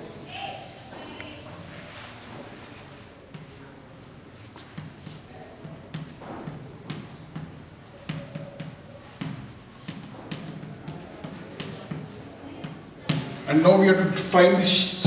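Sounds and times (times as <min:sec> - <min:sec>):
chalk rubbing strokes: 0:04.0 - 0:05.4, 0:07.8 - 0:12.4
chalk tapping on blackboard: 0:04.6 - 0:13.4.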